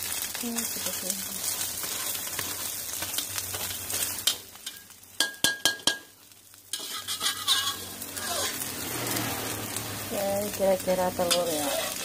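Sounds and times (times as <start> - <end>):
omelette sizzling in oil: 0.0 - 12.0
spatula clinking against wok: 4.2 - 6.1, 6.7 - 8.6.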